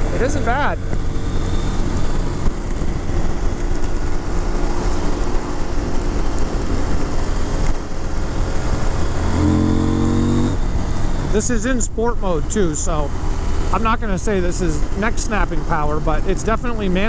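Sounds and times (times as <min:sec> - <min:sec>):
motorcycle engine running: 0:00.0 - 0:11.4.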